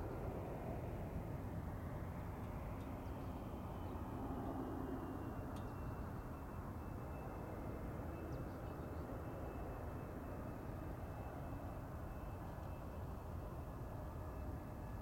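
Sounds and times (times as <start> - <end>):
faint high engine whine: 0.0 - 15.0.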